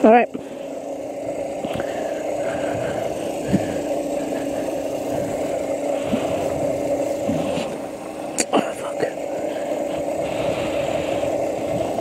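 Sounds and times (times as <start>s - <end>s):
electric motor whining: 0.0s - 12.0s
wind rushing over microphone: 1.1s - 12.0s.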